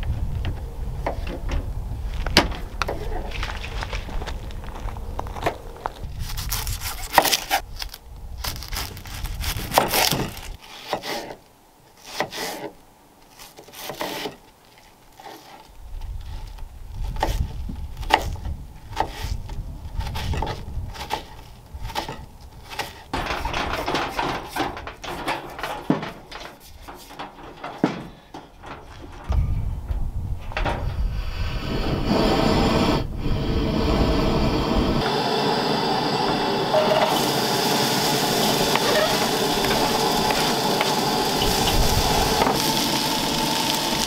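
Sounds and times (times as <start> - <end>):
knocks clicks and rubbing: 21.9 - 31.0, 38.3 - 44.0.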